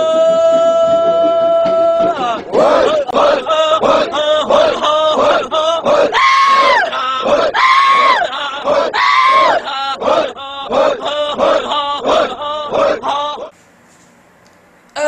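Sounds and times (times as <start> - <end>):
man shouting: 9.0 - 9.6.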